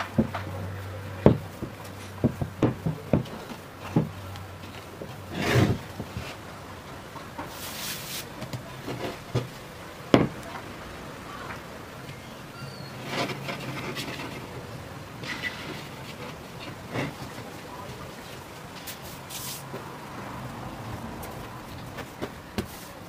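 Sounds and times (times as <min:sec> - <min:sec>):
dough scraping in bowl: 0:05.3 - 0:06.4
high hiss: 0:07.4 - 0:08.4, 0:18.8 - 0:19.8.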